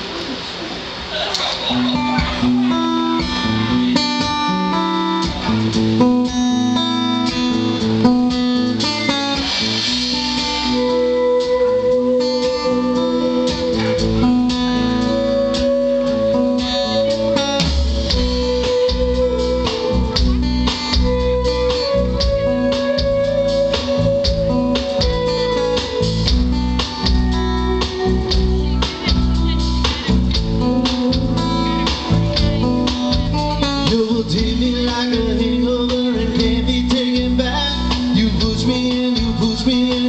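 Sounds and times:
drum kit: 0:00.0 - 0:40.0
guitars: 0:00.0 - 0:40.0
deep bass: 0:02.2 - 0:40.0.

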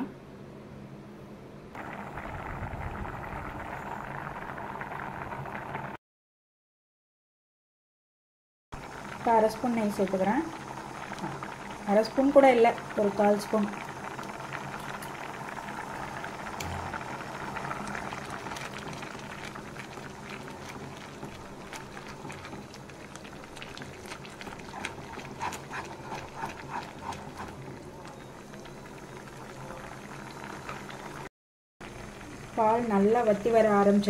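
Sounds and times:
thick mixture bubbling and popping: 0:01.8 - 0:06.0, 0:08.8 - 0:33.7
spoon stirring in a pan: 0:23.6 - 0:27.7.

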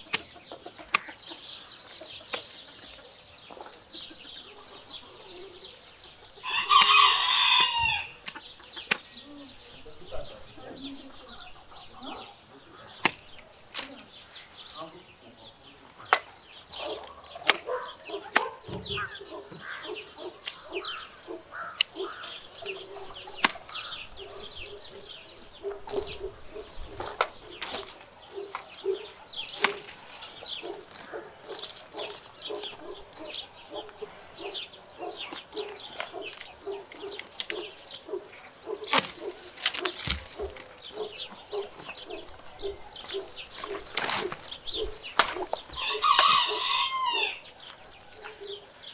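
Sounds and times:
pruning shears snipping branches: 0:00.0 - 0:01.2, 0:01.9 - 0:03.0, 0:06.5 - 0:09.2, 0:12.8 - 0:14.2, 0:15.9 - 0:24.3, 0:25.7 - 0:48.4
twigs rustling: 0:00.0 - 0:14.9, 0:15.6 - 0:48.8
birds chirping: 0:00.0 - 0:48.9
poultry clucking: 0:00.0 - 0:48.9.

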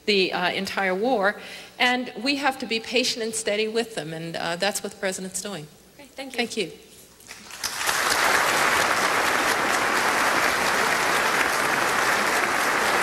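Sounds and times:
audience applause: 0:07.4 - 0:13.0.

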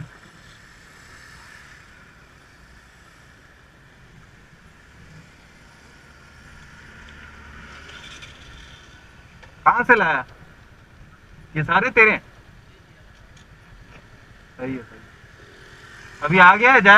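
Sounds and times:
low rumble of vehicles: 0:00.0 - 0:16.9.

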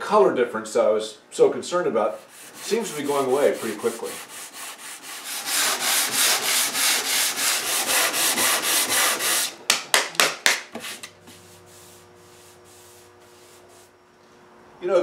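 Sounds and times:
sandpaper rasping on wood: 0:02.1 - 0:09.5, 0:10.8 - 0:14.0.

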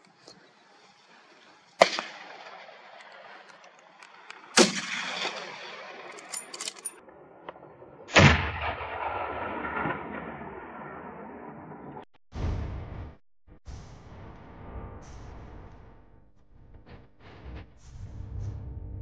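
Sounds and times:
gunshots with long echo: 0:01.7 - 0:06.3, 0:07.2 - 0:13.1.

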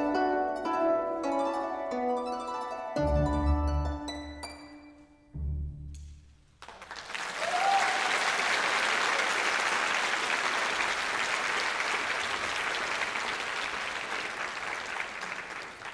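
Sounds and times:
audience applause: 0:06.6 - 0:15.9
audience cheer: 0:06.9 - 0:15.9.

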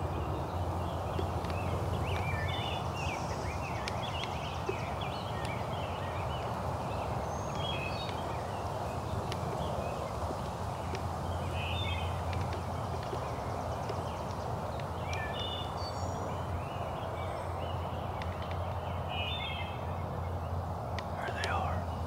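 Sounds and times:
outdoor background noise: 0:00.0 - 0:22.0
faint clicks: 0:09.2 - 0:09.7, 0:12.2 - 0:15.3, 0:18.1 - 0:18.8.

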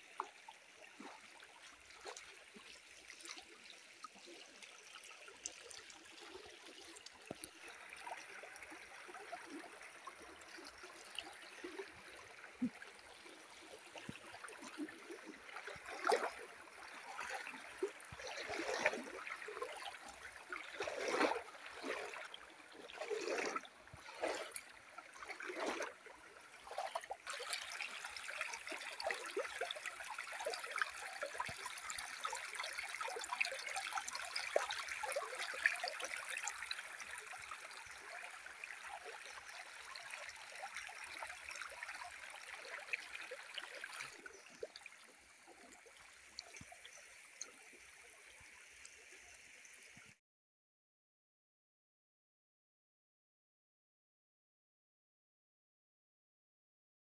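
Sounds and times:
stream trickling over stones: 0:00.0 - 0:50.2
water swells and knocks: 0:00.0 - 0:50.2.

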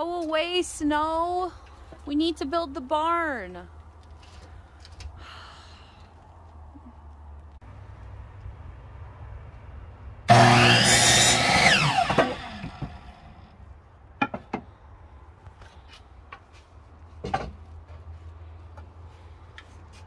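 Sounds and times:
electric saw cutting wood: 0:10.3 - 0:13.4.

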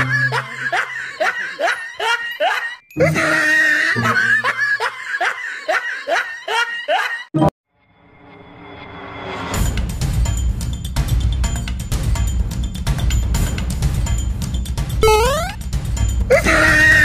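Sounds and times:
person laughing: 0:00.0 - 0:02.8, 0:04.1 - 0:07.2.

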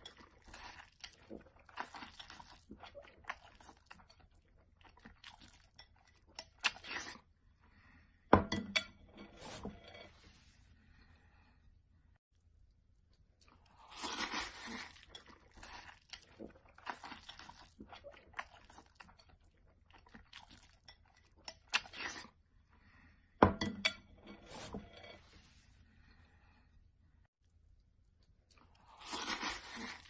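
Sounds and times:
person crunching and chewing food: 0:00.0 - 0:07.3, 0:13.1 - 0:22.4, 0:27.4 - 0:30.0.

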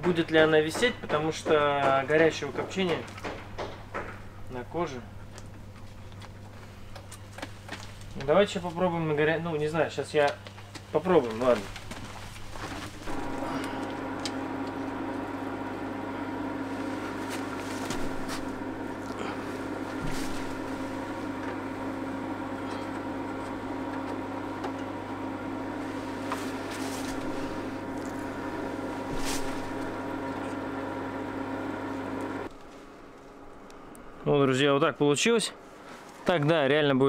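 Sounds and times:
electric motor hum: 0:11.2 - 0:34.7.

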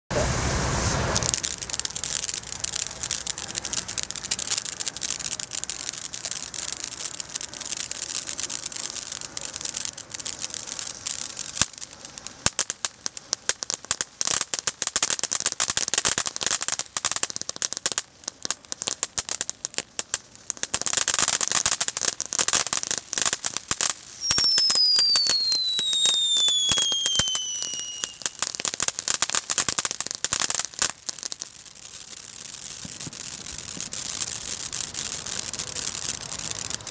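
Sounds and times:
firework fountain crackling: 0:00.1 - 0:36.9
falling whistle: 0:24.2 - 0:28.4.

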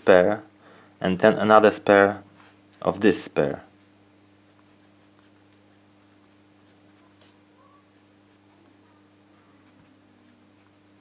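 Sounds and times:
low steady hum: 0:00.0 - 0:11.0
pencil scratching on paper: 0:06.0 - 0:08.8, 0:09.4 - 0:10.8.

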